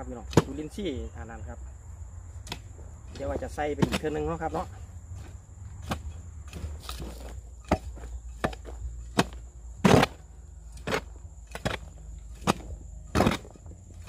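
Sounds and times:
hand tool scraping compost: 2.4 - 14.0.

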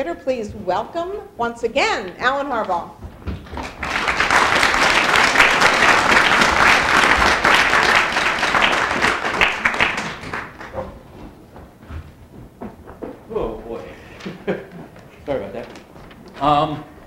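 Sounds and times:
audience applauding: 3.4 - 10.8.

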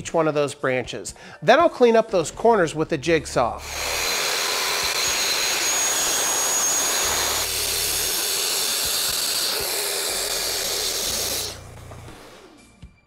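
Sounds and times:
track saw cutting plywood: 3.6 - 12.7.

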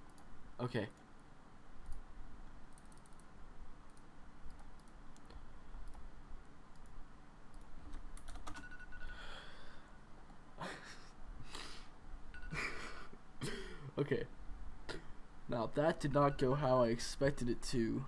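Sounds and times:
keyboard and mouse clicking: 2.7 - 6.1, 6.7 - 8.7.

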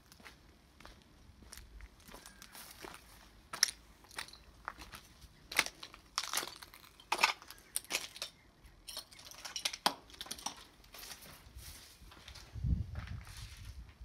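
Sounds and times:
footsteps crunching on broken glass: 0.1 - 13.8
debris clinking: 5.6 - 10.7.

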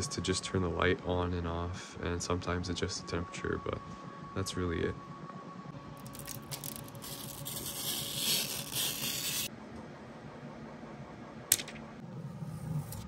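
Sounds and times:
plastic film peeling: 6.0 - 9.5.

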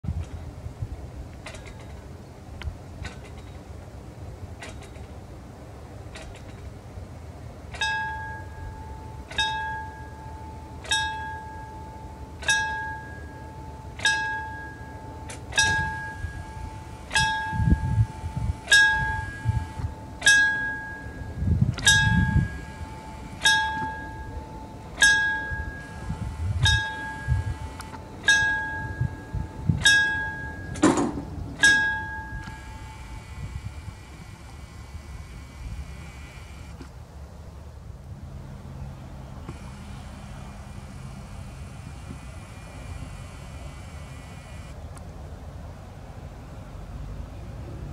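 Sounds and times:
low rumbles: 0.1 - 37.1
level crossing bell ringing: 7.8 - 30.8, 31.6 - 33.2.

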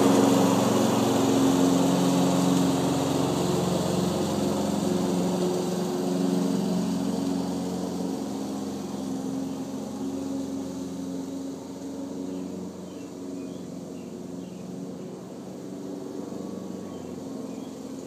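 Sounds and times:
lawn mower engine running: 0.0 - 18.0.

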